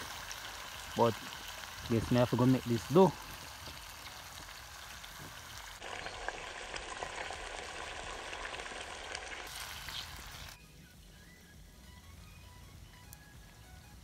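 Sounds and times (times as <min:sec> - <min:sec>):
fish sizzling in hot oil: 0:00.0 - 0:10.6.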